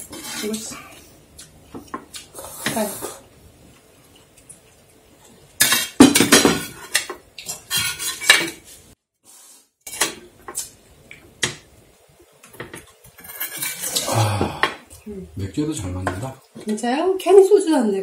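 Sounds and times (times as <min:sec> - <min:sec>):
spoons and dishes clattering: 0:05.6 - 0:08.6, 0:12.5 - 0:14.1.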